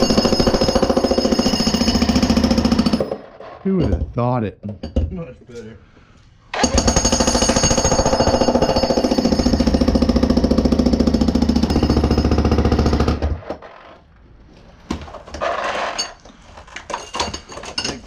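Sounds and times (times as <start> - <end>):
jackhammer breaking concrete: 0.0 - 3.2, 6.6 - 13.8.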